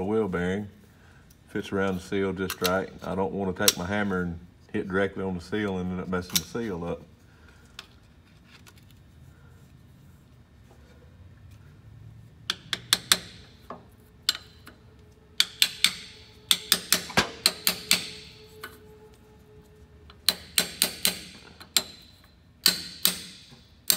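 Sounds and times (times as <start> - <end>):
hammer tapping on metal: 15.4 - 18.4, 20.2 - 22.0, 22.6 - 23.9.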